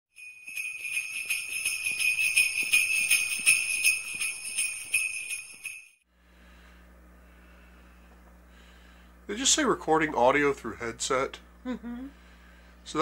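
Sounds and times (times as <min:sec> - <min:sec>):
jingle bells shaken: 0:00.2 - 0:06.0.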